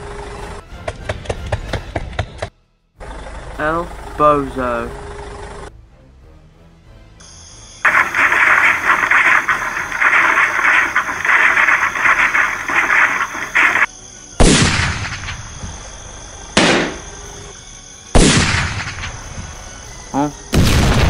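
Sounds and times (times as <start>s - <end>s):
harsh fluttering noise: 7.8s - 13.9s
loud bangs: 7.8s - 15.6s, 16.6s - 17.1s, 18.2s - 19.5s.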